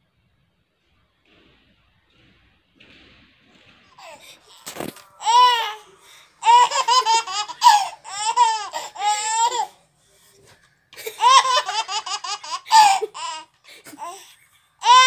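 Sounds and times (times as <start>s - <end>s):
baby laughing: 4.0s - 9.8s, 10.4s - 15.0s.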